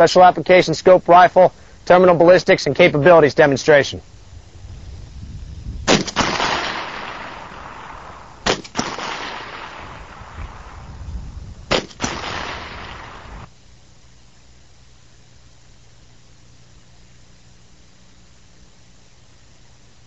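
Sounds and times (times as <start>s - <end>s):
rifle shots with echo: 5.9s - 10.7s, 11.7s - 13.5s.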